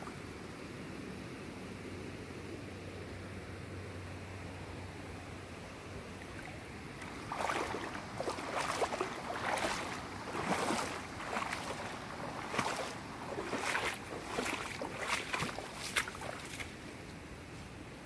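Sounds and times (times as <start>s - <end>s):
creek rushing: 5.9s - 17.0s
footsteps: 7.0s - 16.7s.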